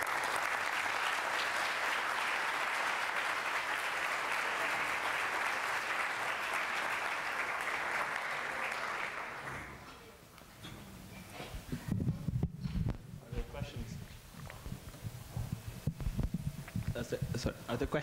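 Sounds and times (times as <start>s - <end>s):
audience applauding: 0.0s - 9.8s.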